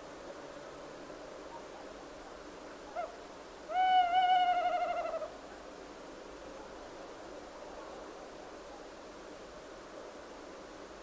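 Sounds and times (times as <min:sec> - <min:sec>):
owl hooting: 0:02.9 - 0:05.3.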